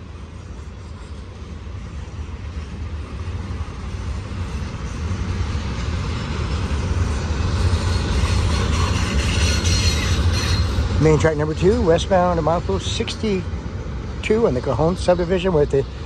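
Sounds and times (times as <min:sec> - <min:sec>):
train wheels rumbling on rail: 0:00.0 - 0:16.0.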